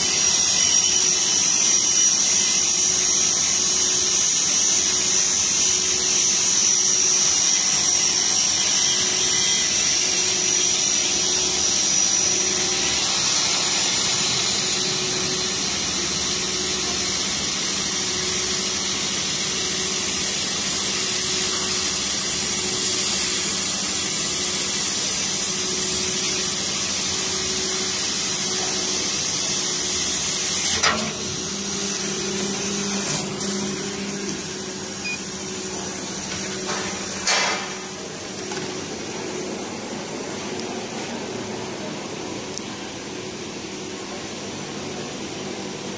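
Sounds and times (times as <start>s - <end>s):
laser cutter high whine: 0.0s - 45.9s
air assist hiss: 11.6s - 38.3s
sharp knock: 36.7s - 37.8s.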